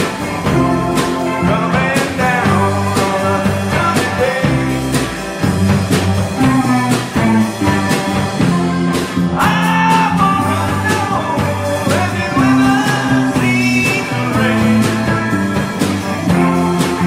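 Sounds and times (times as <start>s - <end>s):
man singing lead: 0.0s - 5.2s, 9.2s - 17.0s
rock band playing: 0.0s - 17.0s.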